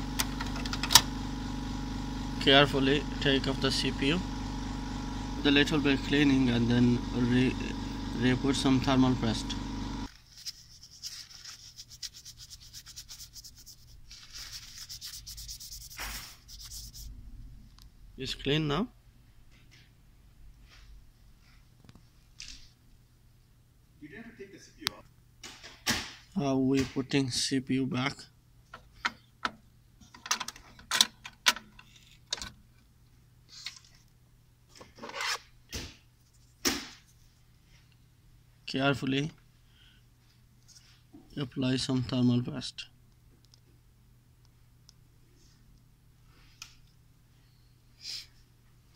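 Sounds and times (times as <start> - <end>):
tissue scratching on metal: 10.1 - 17.1.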